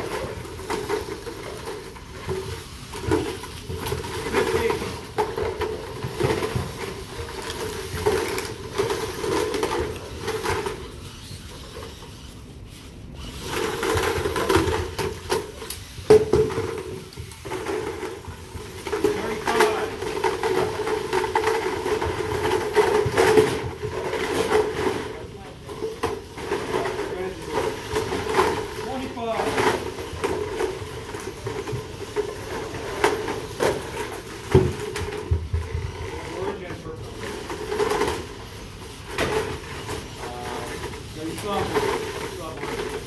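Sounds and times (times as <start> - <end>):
small electric motors whirring: 6.1 - 17.8.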